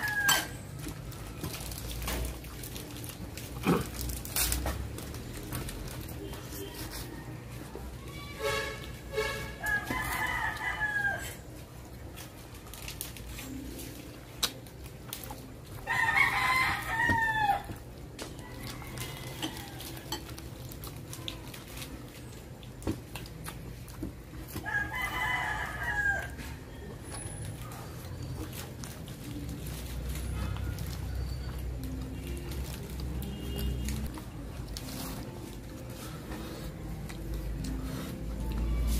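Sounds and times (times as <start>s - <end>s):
rooster crowing: 0.0s - 0.6s, 9.6s - 11.4s, 15.8s - 20.2s, 24.6s - 26.6s.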